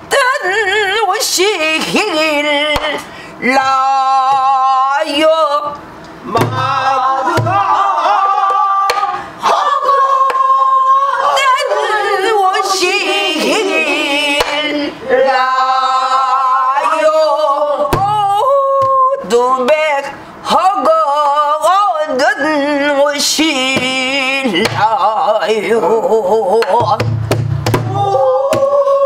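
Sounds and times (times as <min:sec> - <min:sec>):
woman singing with vibrato: 0:00.0 - 0:27.0, 0:27.8 - 0:29.0
deep drum thumps: 0:06.3 - 0:07.8, 0:17.9 - 0:18.4, 0:26.6 - 0:28.7.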